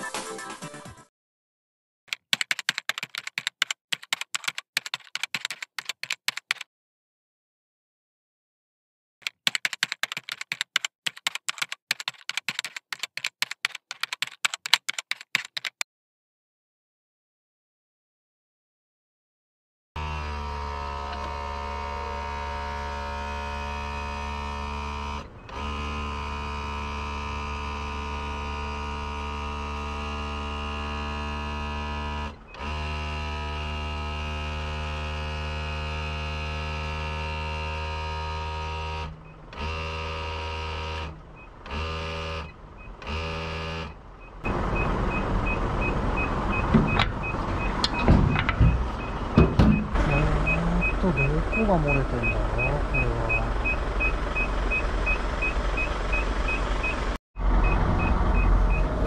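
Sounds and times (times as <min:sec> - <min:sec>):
diesel truck engine idling: 0:44.0 - 0:59.0
fast high beeping: 0:44.8 - 0:57.0.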